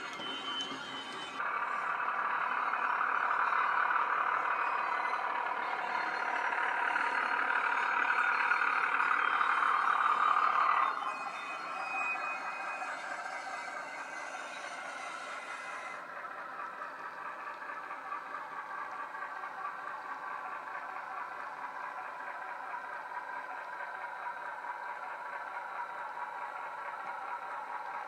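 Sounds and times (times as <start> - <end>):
thin high tone: 0.0 - 16.0
model diesel engine sound: 0.0 - 28.0.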